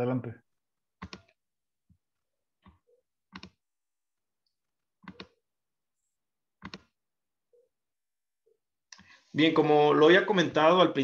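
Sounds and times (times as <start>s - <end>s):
computer mouse clicks: 1.0s - 1.4s, 2.6s - 3.6s, 5.0s - 5.4s, 6.6s - 7.0s.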